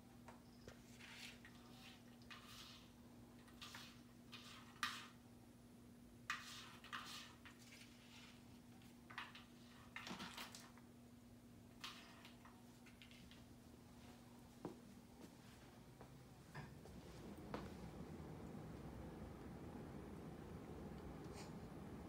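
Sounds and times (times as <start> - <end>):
steady low hum: 13.5 - 22.0.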